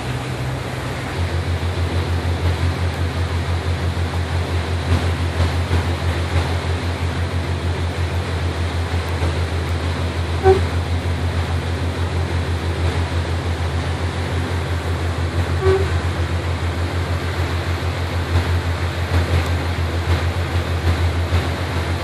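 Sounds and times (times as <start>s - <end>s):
boat engine running: 0.0s - 22.0s
wind: 0.0s - 22.0s
brief horn toots: 10.4s - 10.8s, 15.5s - 16.1s.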